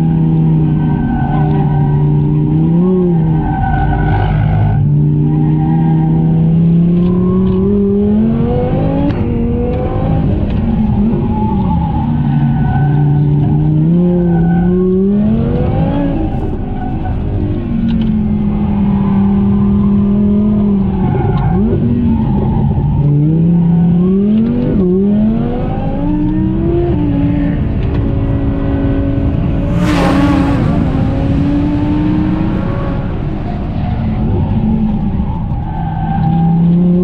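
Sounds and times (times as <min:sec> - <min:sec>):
sports car engine revving: 0:21.5 - 0:37.0
rushing noise: 0:28.0 - 0:35.8.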